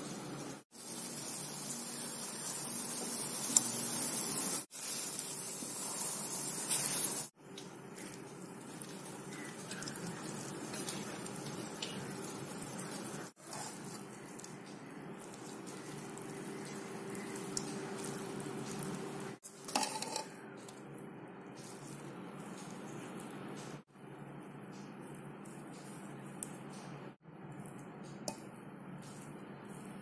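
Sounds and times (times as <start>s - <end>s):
rice sizzling in a pan: 0.0s - 20.2s
spatula scraping and clinking: 16.7s - 20.7s.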